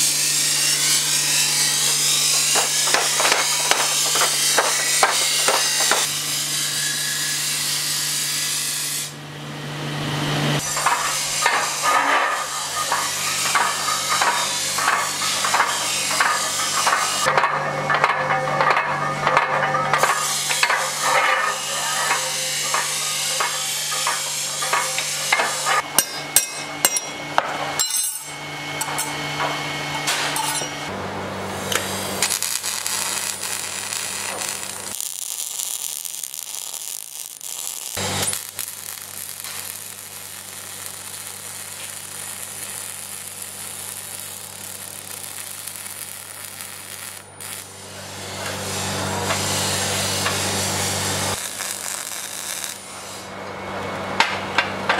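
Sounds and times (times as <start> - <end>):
welding arc crackling: 0.0 - 6.2, 10.6 - 26.6, 31.5 - 53.4.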